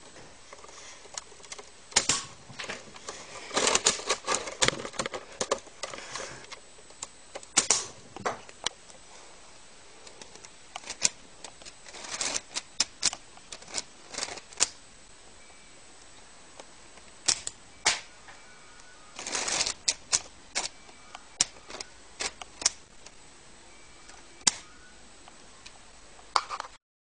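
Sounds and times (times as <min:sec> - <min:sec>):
plastic toy clicks and rattles: 0:03.5 - 0:06.0, 0:10.1 - 0:14.8, 0:19.2 - 0:20.7, 0:21.4 - 0:22.8.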